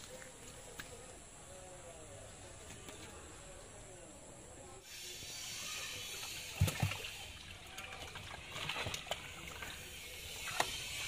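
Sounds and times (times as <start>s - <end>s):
water sloshing and splashing: 6.4s - 11.0s.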